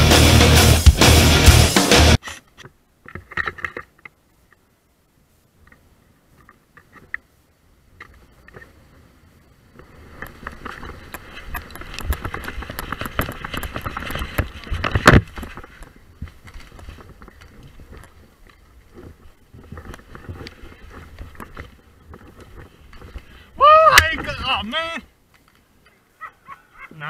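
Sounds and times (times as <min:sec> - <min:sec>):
loud rock music: 0:00.0 - 0:02.2
faint clicks and rustles: 0:02.2 - 0:24.2, 0:25.2 - 0:26.3
running through brush: 0:07.8 - 0:27.0.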